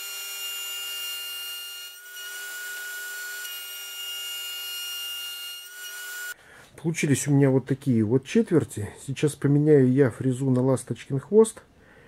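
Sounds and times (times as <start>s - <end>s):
router whining while cutting wood: 0.0s - 6.4s.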